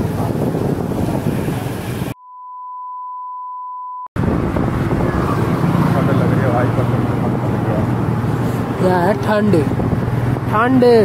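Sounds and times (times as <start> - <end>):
wind rush on microphone: 0.0 - 2.2, 4.2 - 11.0
electronic censor bleep: 2.2 - 4.1
traffic noise: 4.2 - 11.0.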